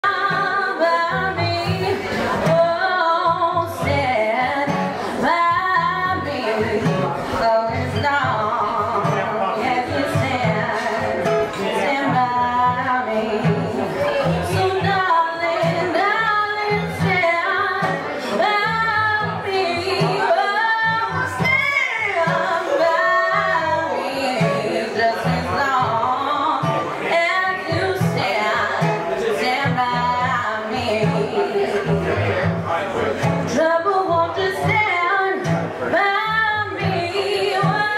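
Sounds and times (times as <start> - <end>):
woman singing into microphone: 0.0 - 32.5, 33.3 - 37.9
rhythmic guitar accompaniment: 0.0 - 37.9.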